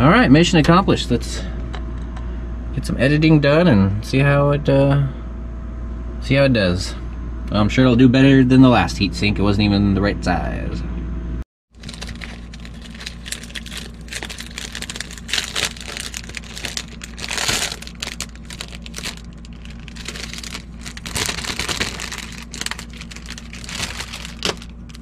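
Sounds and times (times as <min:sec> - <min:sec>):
steady low hum: 0:00.0 - 0:25.0
plastic bag crinkling: 0:11.7 - 0:25.0.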